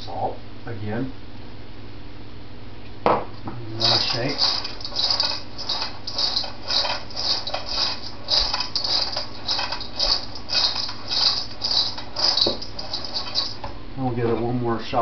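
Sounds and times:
popcorn swishing in metal bowl: 3.7s - 13.8s.

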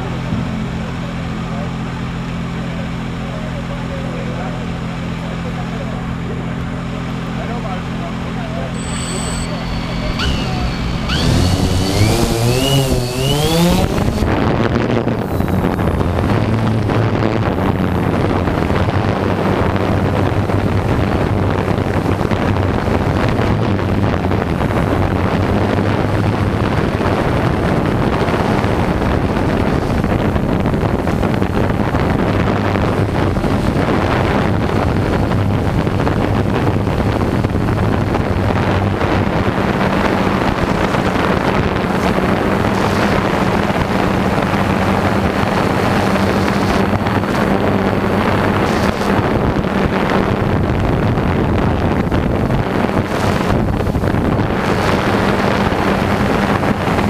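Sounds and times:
propeller buzz: 8.2s - 50.7s, 52.3s - 57.0s
drone motors spinning up: 8.7s - 14.4s, 42.0s - 47.5s, 48.4s - 49.2s
wind on microphone: 8.8s - 57.0s.

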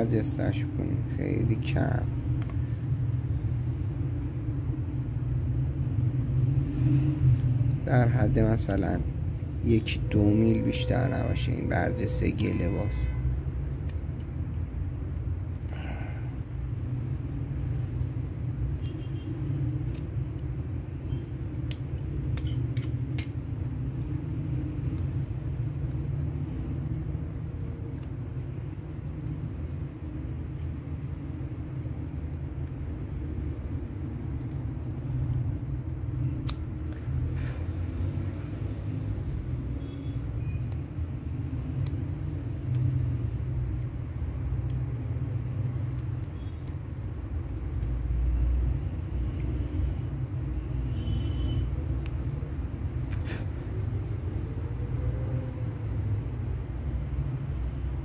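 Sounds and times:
knife carving wood: 21.7s - 23.5s.

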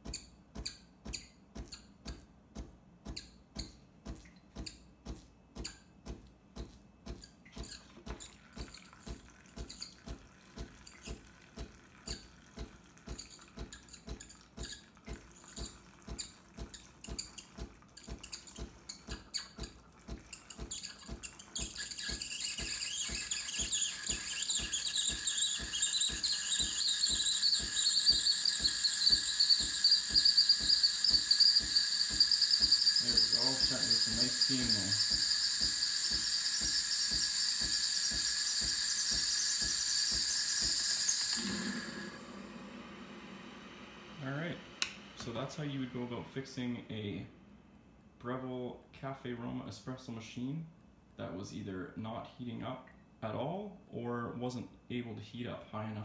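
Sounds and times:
espresso machine pump pulsing: 7.6s - 46.2s
steam wand hissing: 21.6s - 46.2s.

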